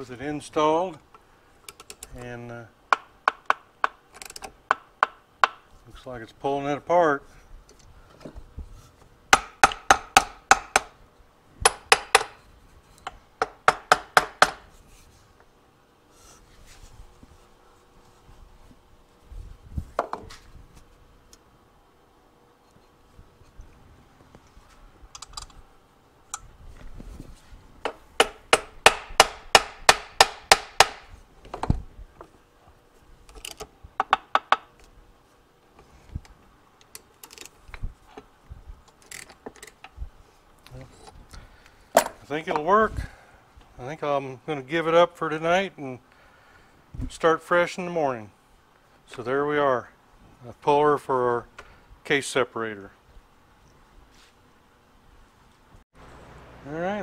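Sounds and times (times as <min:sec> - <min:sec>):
sharp metal clicks: 0:25.1 - 0:25.6.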